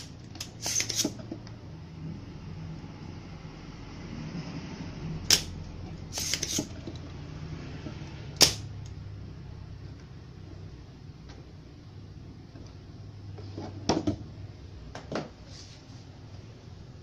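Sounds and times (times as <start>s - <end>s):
desoldering pump snapping: 5.2s - 7.1s, 8.4s - 9.0s.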